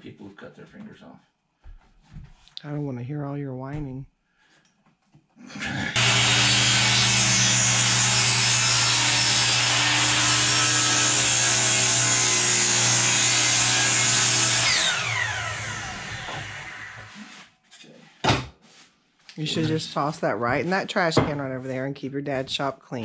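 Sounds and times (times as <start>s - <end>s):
power saw cutting wood: 5.6s - 17.5s.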